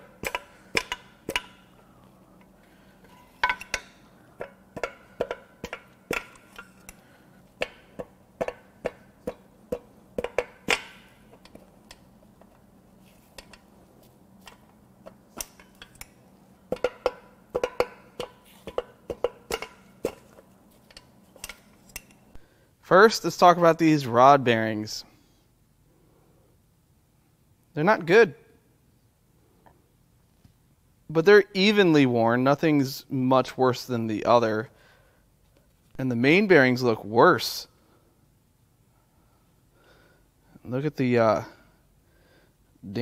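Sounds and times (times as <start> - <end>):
hammer tapping on metal: 7.6 - 11.0.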